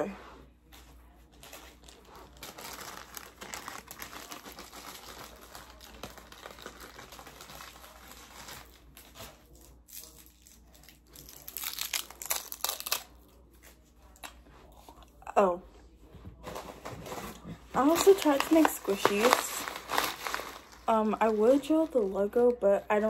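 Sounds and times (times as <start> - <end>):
paper crinkling and rustling: 0.6 - 14.2, 16.3 - 22.6.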